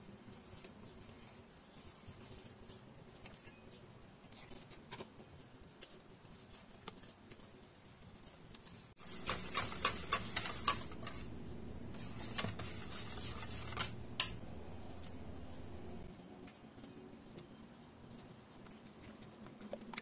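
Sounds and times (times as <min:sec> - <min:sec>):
whisk stirring batter: 0:08.1 - 0:16.1
whisk ticking against metal bowl: 0:09.0 - 0:16.0.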